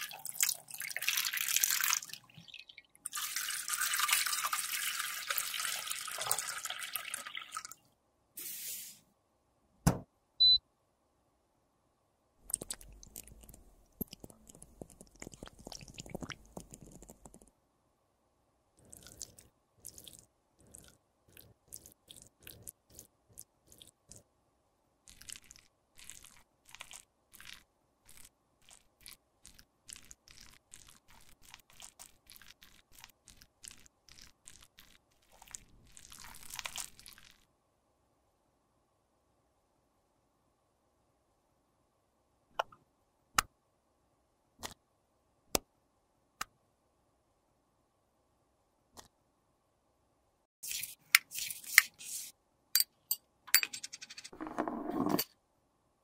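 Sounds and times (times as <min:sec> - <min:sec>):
small wet clicks: 0:12.4 - 0:17.5, 0:25.1 - 0:37.5
wet crackling and squelching: 0:12.4 - 0:17.5, 0:25.1 - 0:37.5.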